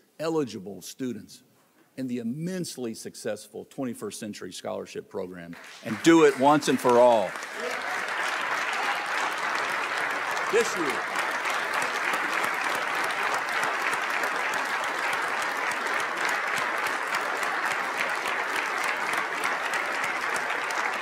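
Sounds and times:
crowd clapping: 5.5 - 21.0.

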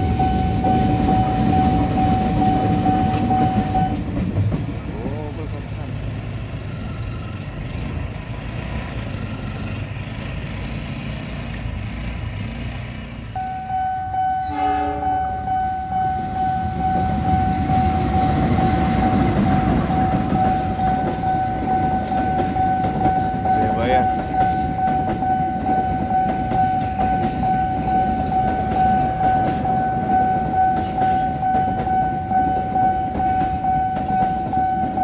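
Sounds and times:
steady high tone: 0.0 - 4.1, 13.4 - 35.0
locomotive and wheels rumbling: 0.0 - 35.0
train horn: 13.6 - 18.4.

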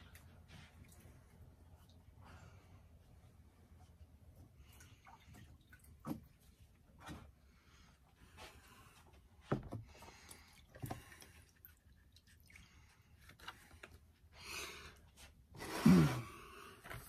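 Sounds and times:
water dripping and splashing in tub: 0.0 - 2.6, 3.9 - 7.4, 9.5 - 14.2.

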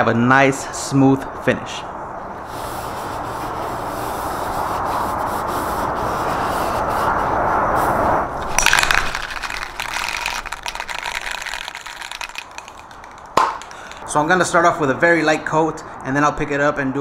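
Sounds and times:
cloth rubbing hiss: 2.4 - 14.0
spray can ball rattling: 8.4 - 14.0.

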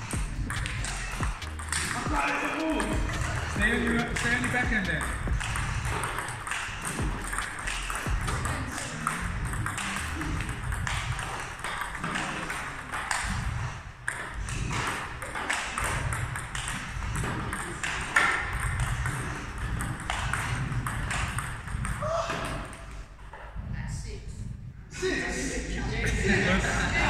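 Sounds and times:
table tennis ball clicks and pocks: 0.1 - 22.9.

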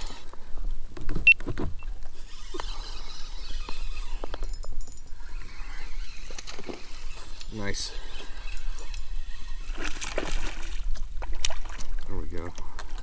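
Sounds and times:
fishing reel cranking: 0.0 - 0.3, 2.1 - 10.5.

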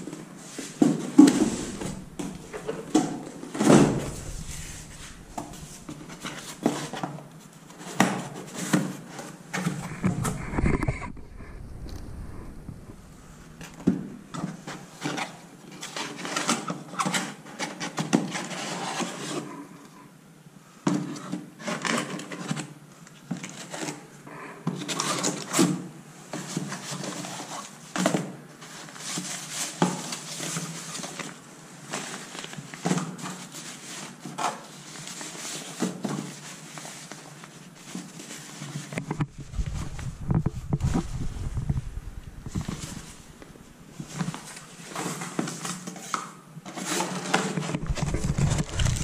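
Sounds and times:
cardboard box rustling and scraping: 0.7 - 7.2, 9.6 - 13.9, 33.2 - 49.0.

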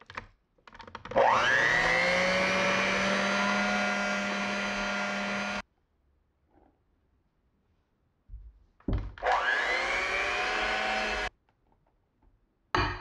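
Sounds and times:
electric hand mixer whirring: 1.1 - 5.6, 9.2 - 11.3.

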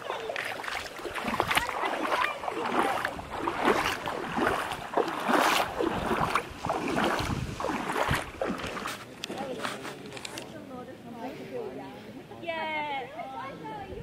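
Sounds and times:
water splashing: 0.0 - 10.6
wind buffeting microphone: 1.0 - 8.9.

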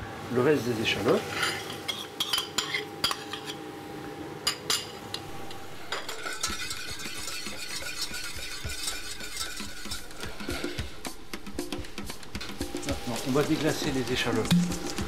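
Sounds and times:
metal spoon scraping saucepan: 1.3 - 3.6, 4.8 - 11.1.

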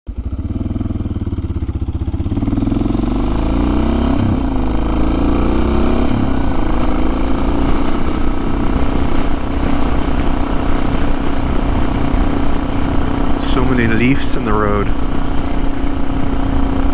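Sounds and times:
motorcycle engine pulling away: 0.1 - 16.9.

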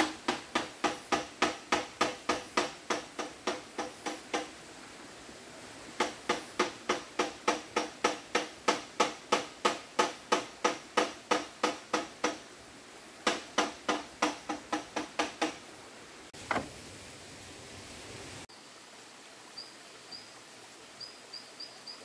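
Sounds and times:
rhythmic hollow knocking: 0.0 - 4.5, 6.0 - 12.4, 13.2 - 15.6.

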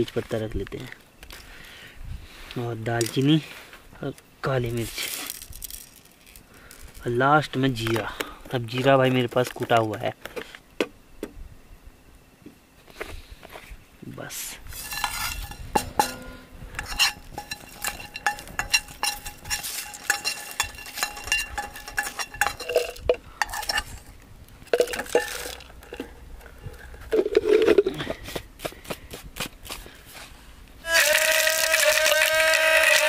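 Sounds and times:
spices roasting in a pan: 14.2 - 27.0
spoon scraping and knocking metal pan: 14.7 - 27.8.

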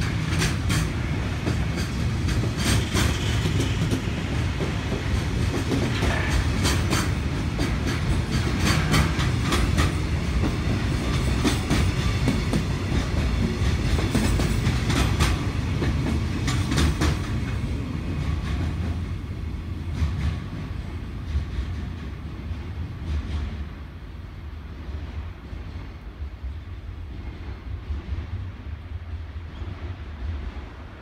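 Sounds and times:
wheels clacking over rail joints: 0.0 - 19.0
freight train rumbling past: 0.0 - 31.0.

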